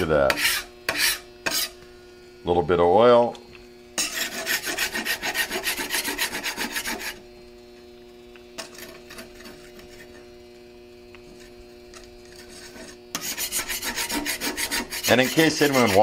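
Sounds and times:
scraper scraping griddle: 0.0 - 1.8, 4.0 - 7.2, 8.6 - 10.3, 11.2 - 16.0.

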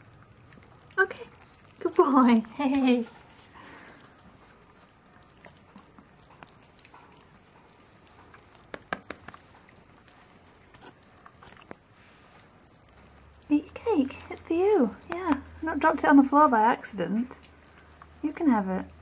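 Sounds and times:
dog claws clicking and tapping: 8.6 - 9.4, 14.1 - 16.5.

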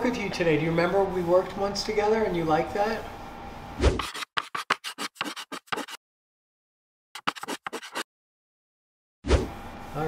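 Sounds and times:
scratchy writing strokes: 4.0 - 6.0, 7.2 - 8.1.

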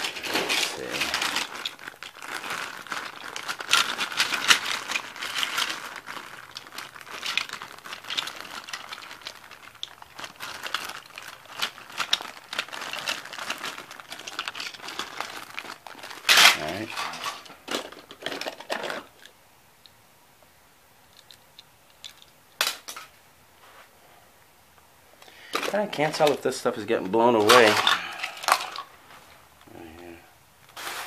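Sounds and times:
plastic bags crinkling: 0.0 - 19.4, 25.2 - 31.0
toy cars clicking: 2.9 - 19.4, 21.1 - 23.1, 27.3 - 28.9.

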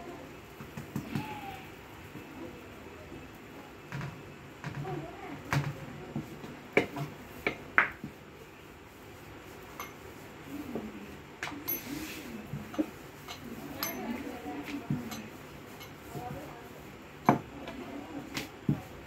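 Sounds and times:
kitchen utensils knocking: 12.8 - 14.3.

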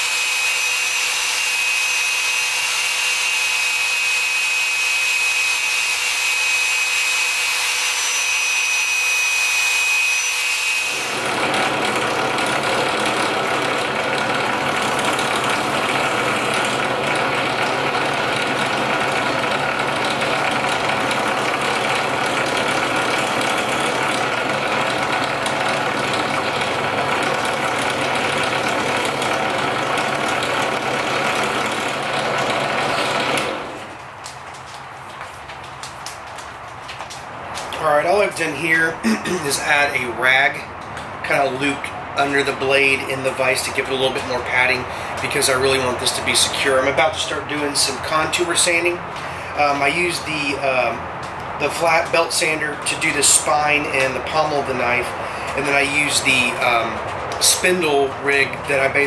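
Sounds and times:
drill press sanding drum grinding: 0.0 - 34.0, 51.6 - 59.0.

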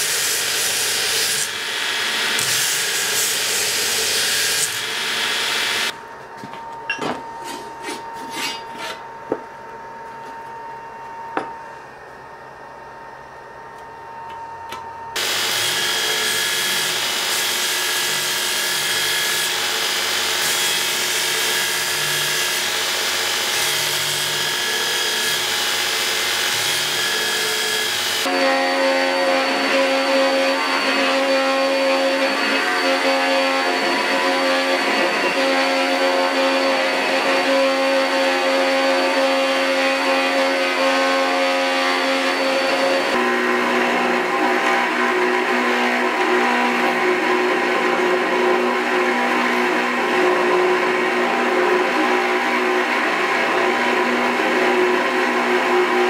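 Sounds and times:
belt grinder grinding steel: 0.0 - 5.9, 15.2 - 28.4
belt grinder humming: 0.0 - 5.9.

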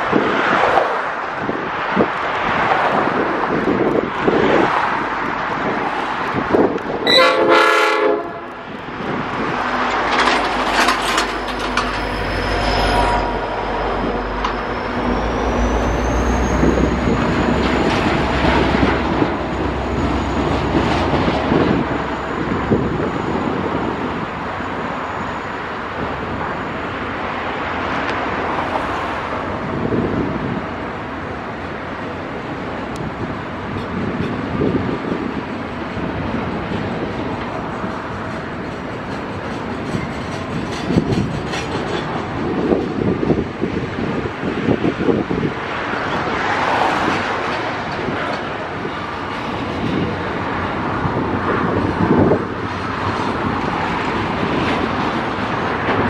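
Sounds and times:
diesel locomotive passing: 0.0 - 56.0
freight train rumble and wheel clatter: 0.0 - 56.0
high wheel squeal: 9.4 - 27.4.

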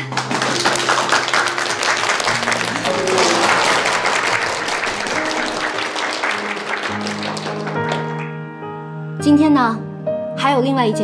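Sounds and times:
group of people applauding: 0.0 - 8.4
background music of held notes: 0.0 - 11.0.

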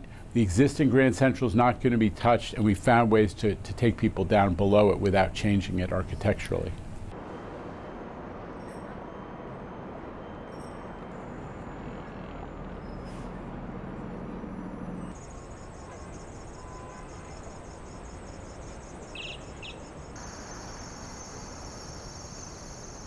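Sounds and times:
traffic hum: 0.0 - 23.0
high chirring whine: 14.0 - 23.0.

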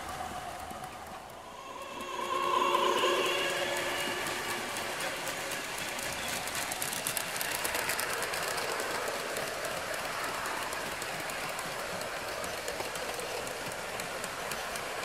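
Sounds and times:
model train wheels rattling: 4.0 - 15.0.

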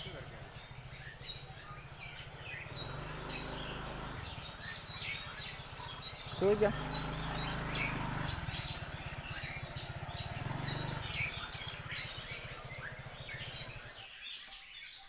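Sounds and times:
birds chirping and calling: 0.0 - 15.0.

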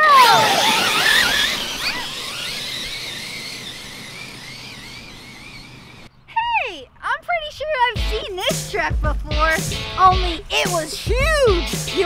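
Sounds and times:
rc truck motor whine: 0.0 - 6.1.

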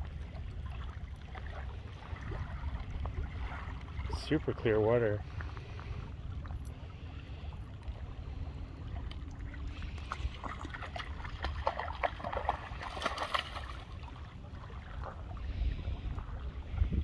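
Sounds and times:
low rumble: 0.0 - 17.0
dog splashing through water: 10.0 - 14.2.

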